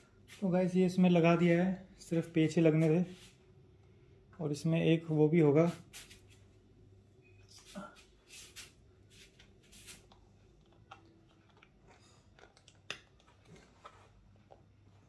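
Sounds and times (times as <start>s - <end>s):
plastic clicks and rustles: 10.1s - 14.7s.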